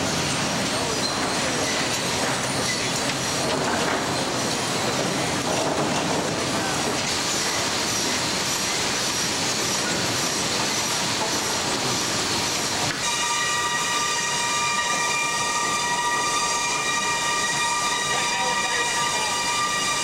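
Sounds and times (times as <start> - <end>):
high-pitched squeals: 13.0 - 20.0.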